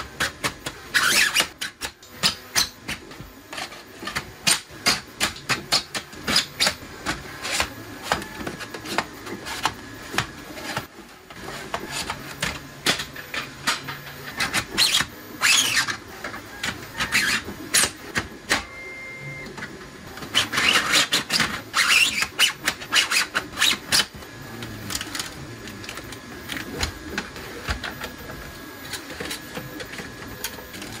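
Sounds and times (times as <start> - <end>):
hard plastic clicking and scraping: 19.5 - 31.0.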